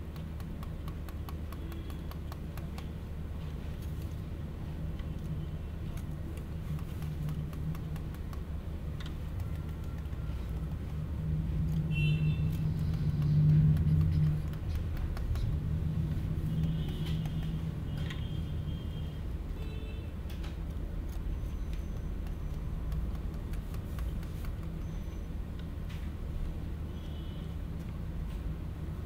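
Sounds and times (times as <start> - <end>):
low rumbling hum: 0.0 - 19.6.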